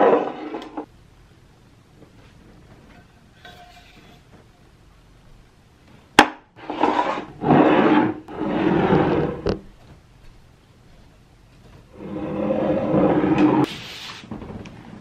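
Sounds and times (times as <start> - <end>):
bottles rubbing and sliding: 6.6 - 9.6, 11.9 - 14.3.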